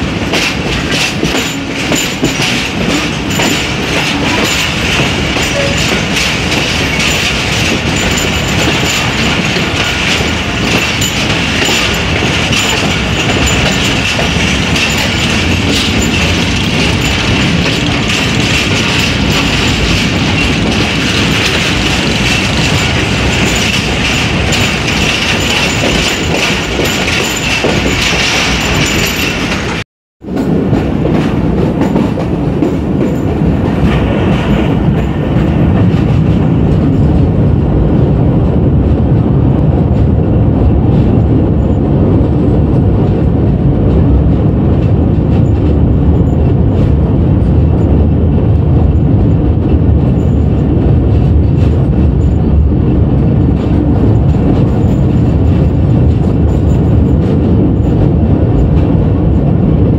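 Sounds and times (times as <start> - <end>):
train wheels rattling on track: 0.0 - 59.9.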